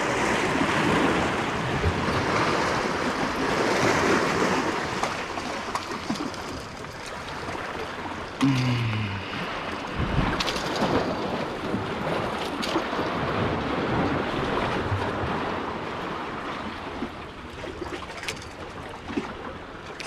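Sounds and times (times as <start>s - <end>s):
sea water washing: 0.0s - 20.0s
wind noise on microphone: 9.3s - 16.2s.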